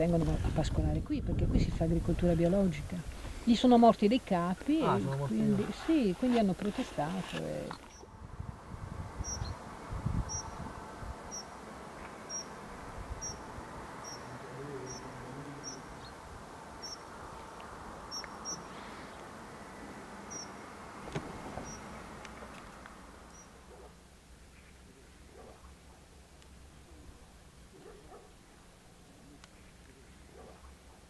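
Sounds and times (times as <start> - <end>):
wind buffeting microphone: 0.0 - 3.4, 8.0 - 11.4
soft steady hiss: 0.0 - 31.0
insect chirping: 7.7 - 8.2, 9.2 - 9.7, 10.3 - 10.6, 11.2 - 11.6, 12.2 - 17.2, 18.0 - 20.9, 21.6 - 22.2, 23.1 - 23.7.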